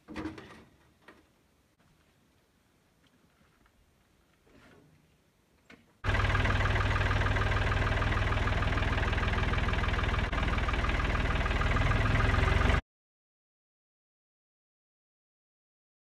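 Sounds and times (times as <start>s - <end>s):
tractor engine running: 6.0s - 12.8s.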